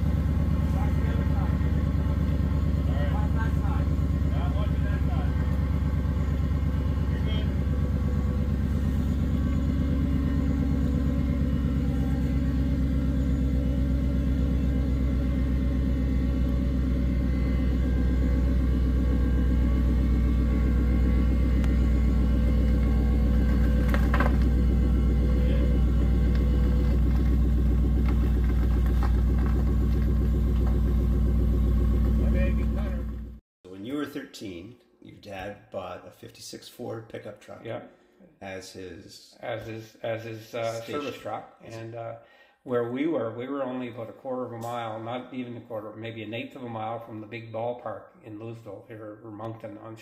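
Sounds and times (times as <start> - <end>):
truck engine idling: 0.0 - 33.4.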